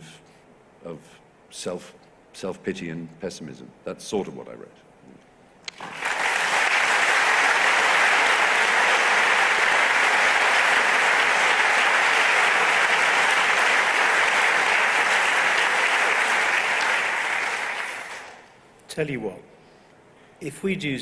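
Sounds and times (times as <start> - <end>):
audience applauding: 5.7 - 18.6.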